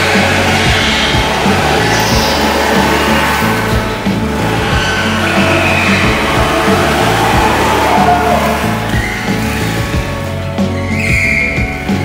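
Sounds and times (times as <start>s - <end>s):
background music with bass and beat: 0.0s - 12.0s.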